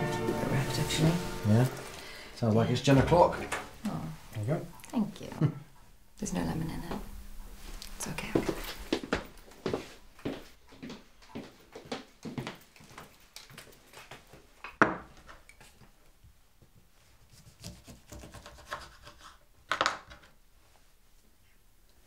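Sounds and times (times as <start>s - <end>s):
footsteps: 0.0s - 4.8s, 6.7s - 15.8s
knife cutting on chopping board: 17.3s - 19.4s.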